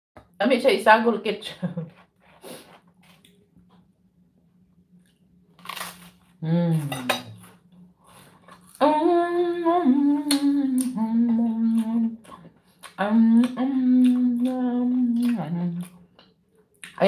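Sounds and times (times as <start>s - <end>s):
woman humming: 6.4s - 7.4s, 8.8s - 12.3s, 12.9s - 16.0s.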